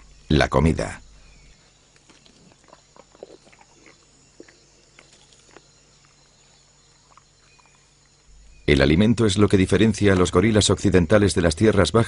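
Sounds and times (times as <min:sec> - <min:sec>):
faint high-pitched forest background: 0:00.0 - 0:12.0
gorilla chewing plant food: 0:01.9 - 0:08.4.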